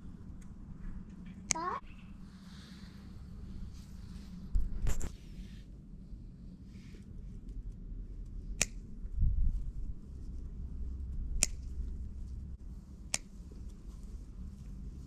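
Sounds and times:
low rumble: 0.0 - 15.0
scissors snipping herbs: 11.1 - 11.9.

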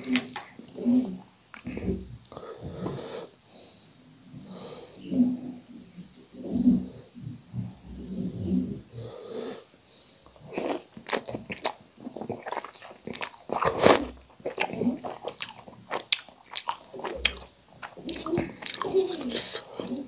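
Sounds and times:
wet chewing: 10.4 - 20.0
person slurping noodles: 12.2 - 15.5.

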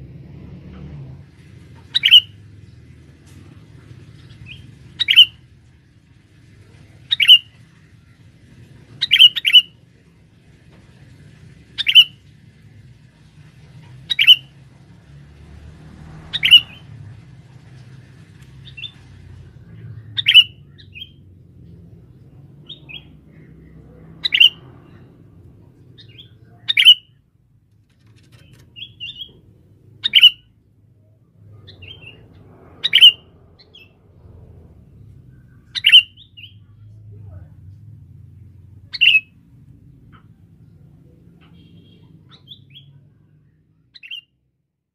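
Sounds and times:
bulbul sharp calls: 1.8 - 2.4, 4.2 - 5.5, 7.0 - 7.7, 9.0 - 9.8, 11.7 - 12.3, 14.0 - 14.6, 16.2 - 17.0, 19.8 - 21.2, 22.6 - 25.1, 25.7 - 27.2, 28.4 - 30.5, 31.6 - 34.0, 35.4 - 36.7, 38.8 - 39.3.

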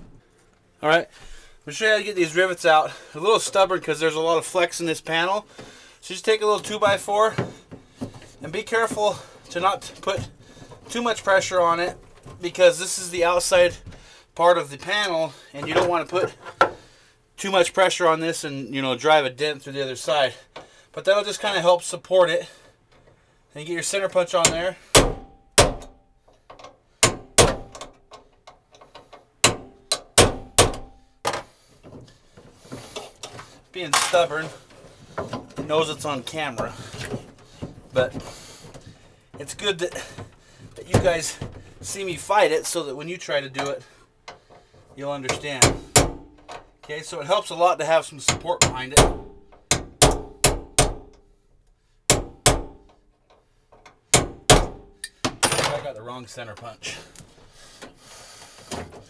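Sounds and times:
hammer striking metal punch: 24.5 - 26.0, 27.0 - 27.9, 29.4 - 31.0, 45.6 - 46.3, 48.3 - 51.2, 52.1 - 52.8, 54.1 - 55.2.

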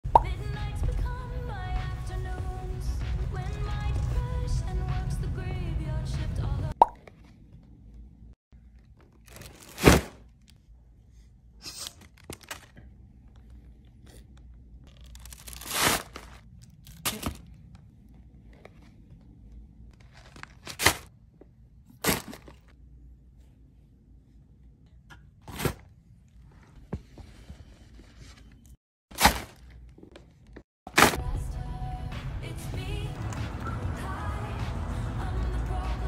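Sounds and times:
objects dropping into paper bags: 9.1 - 10.4, 14.9 - 17.5, 20.0 - 21.1, 22.0 - 22.7, 29.1 - 29.9, 30.9 - 31.2
tissue paper crunching and rustling: 14.9 - 17.4.

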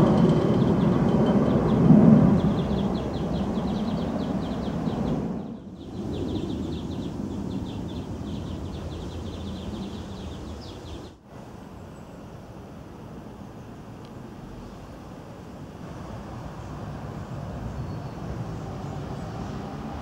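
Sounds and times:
tram rumbling on rails: 0.0 - 11.0
low outdoor hum: 0.0 - 20.0.

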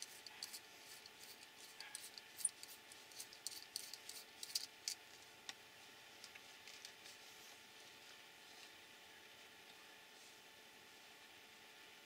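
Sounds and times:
small parts clicking and rustling: 0.0 - 5.3.

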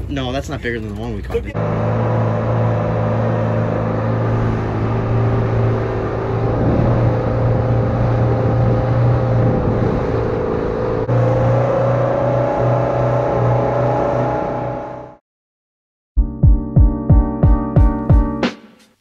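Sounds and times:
wind: 0.0 - 15.1
boat engine droning: 0.0 - 15.2.

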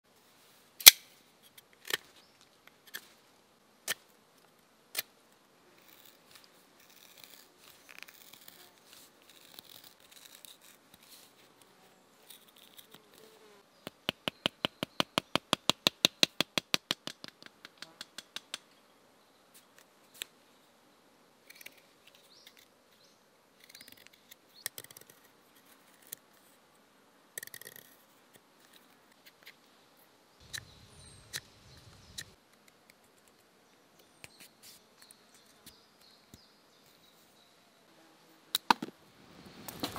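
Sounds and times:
knife scraping bark: 5.8 - 11.4.

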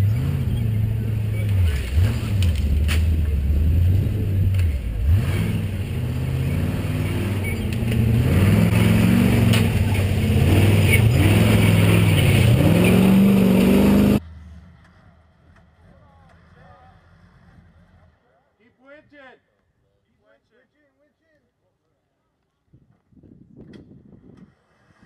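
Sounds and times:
truck engine revving: 0.0 - 18.2.

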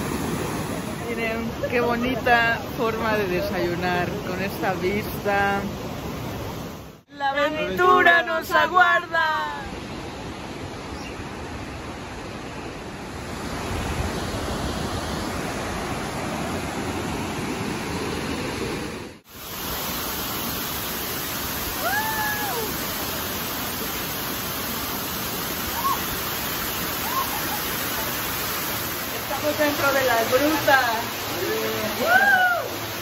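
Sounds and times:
waterfall rushing: 7.4 - 33.0.

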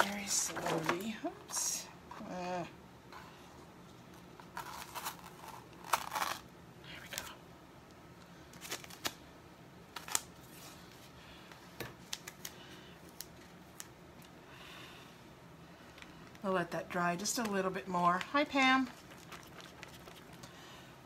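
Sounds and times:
plastic sheet crinkling: 4.4 - 6.4, 8.5 - 9.2, 17.2 - 20.4.

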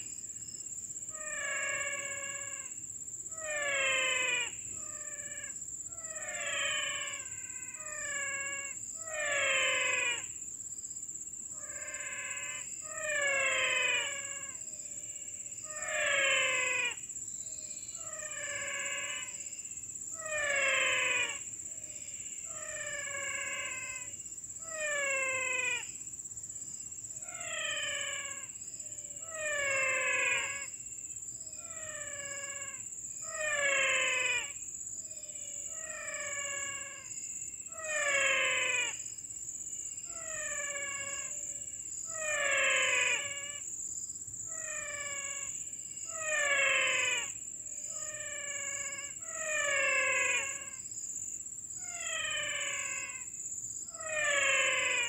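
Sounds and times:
wild animal call: 1.1 - 2.7, 3.3 - 10.3, 11.6 - 14.6, 15.6 - 17.0, 18.0 - 19.4, 20.1 - 25.9, 27.2 - 28.6, 29.2 - 30.7, 31.6 - 34.6, 35.2 - 37.1, 37.7 - 39.0, 40.0 - 43.7, 44.5 - 50.8, 51.8 - 53.3, 53.9 - 55.0.

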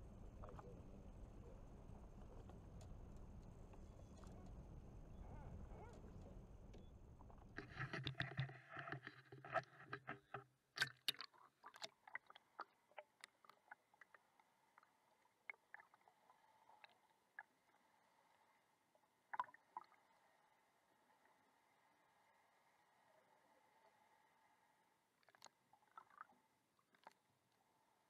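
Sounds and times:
muffled underwater noise: 0.0 - 10.4
sharp underwater clicks and knocks: 6.7 - 13.6.

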